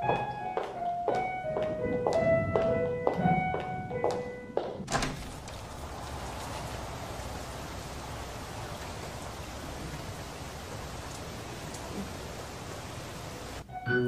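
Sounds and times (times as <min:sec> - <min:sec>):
music: 0:00.0 - 0:04.8, 0:13.6 - 0:14.0
steady rain-like hiss: 0:04.9 - 0:13.8.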